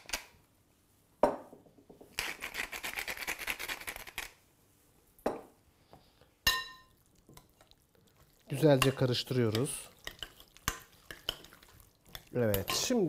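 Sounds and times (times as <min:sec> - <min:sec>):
pepper mill grinding: 0:02.2 - 0:04.4.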